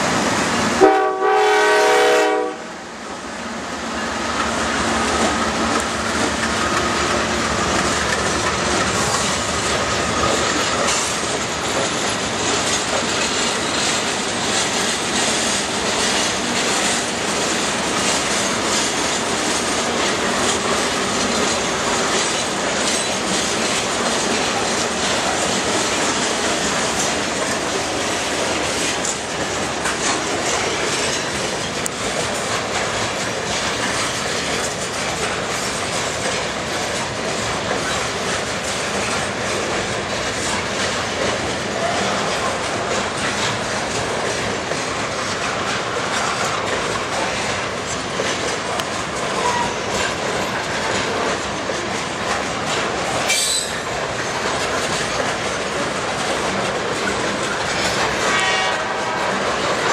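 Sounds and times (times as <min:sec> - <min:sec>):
clickety-clack over rail joints: 0:00.0 - 0:59.9
wheels rumbling on rails: 0:00.0 - 0:59.9
wheel squeals: 0:53.2 - 0:54.4.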